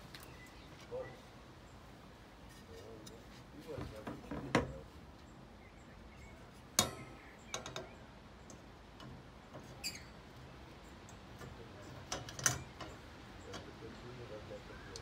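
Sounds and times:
panel clinking on metal wire frame: 6.5s - 14.3s.

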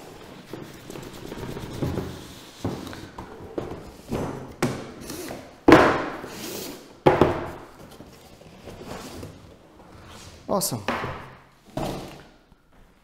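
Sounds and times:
boxes thudding on wooden table: 5.6s - 6.2s, 7.0s - 8.0s, 10.9s - 12.3s.

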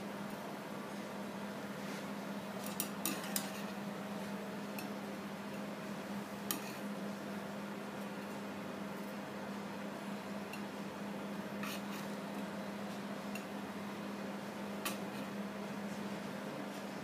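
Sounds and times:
steady low hum: 0.0s - 17.0s
tongs and plates clinking on counter: 2.6s - 3.8s.

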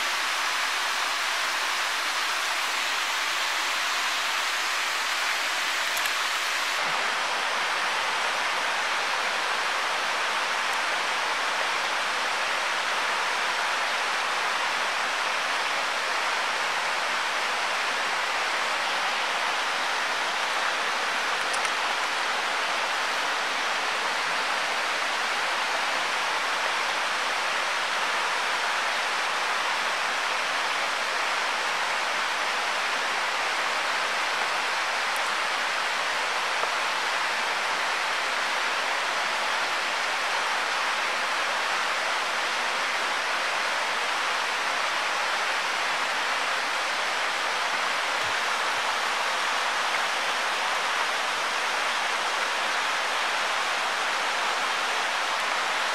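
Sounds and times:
waterfall rushing: 0.0s - 55.9s.

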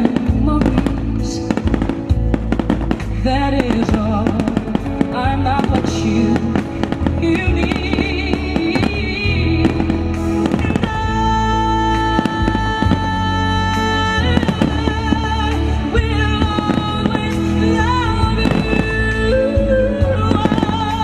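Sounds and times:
fireworks bangs and crackle: 0.0s - 11.3s, 14.2s - 19.1s
loud music playing: 0.0s - 21.0s.

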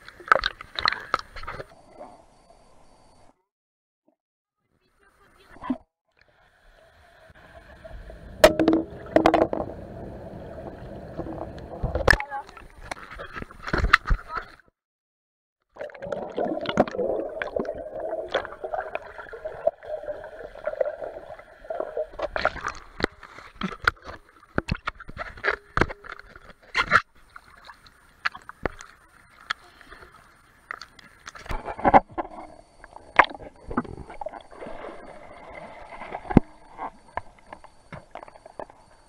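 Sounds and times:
splashes and drips on camera: 0.0s - 1.6s
water sloshing and gurgling: 0.0s - 2.2s, 7.3s - 14.4s, 15.7s - 39.0s.

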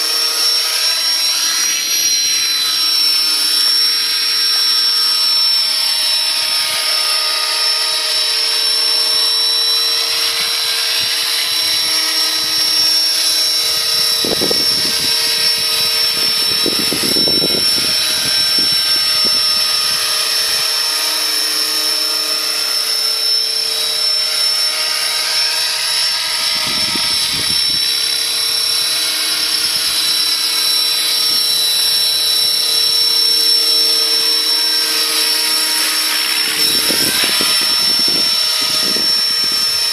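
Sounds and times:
model helicopter motor whine: 0.0s - 39.9s
rotor noise: 0.0s - 39.9s.

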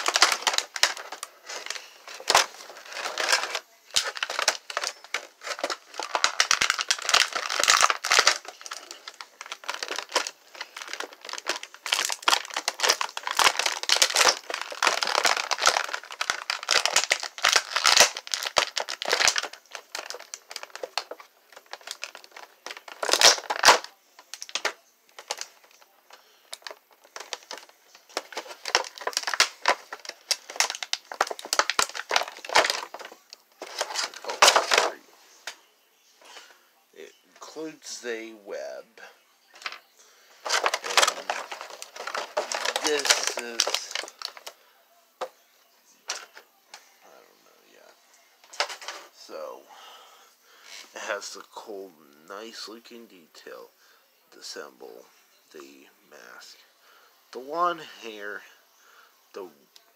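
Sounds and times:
plastic packaging crinkling: 0.0s - 35.0s, 39.5s - 44.6s, 46.0s - 46.9s, 47.8s - 49.4s.

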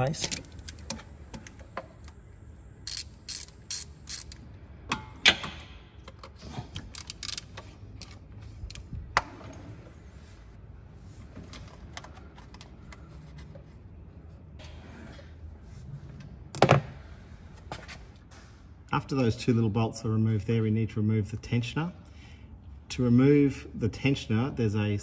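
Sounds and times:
hand ratchet clicking: 2.8s - 4.4s, 6.8s - 8.2s.

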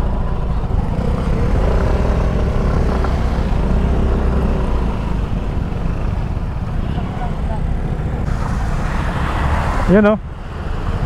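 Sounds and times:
wind and road noise: 0.0s - 11.0s.

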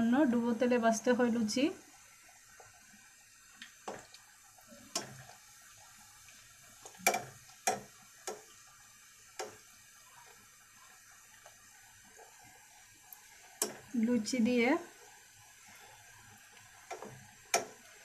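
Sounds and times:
faint steady sizzle of frying: 0.0s - 18.0s
oil clicks and pops: 3.6s - 4.3s, 4.9s - 5.3s, 6.8s - 8.5s, 16.9s - 17.8s.

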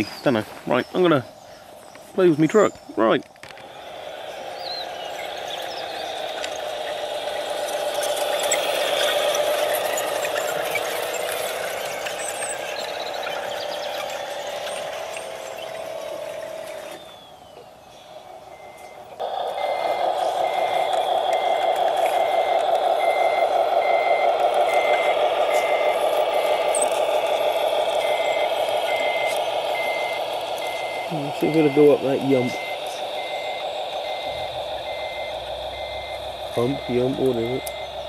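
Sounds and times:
toy truck motor whining: 3.4s - 38.0s
reversing beeper: 3.6s - 38.0s.

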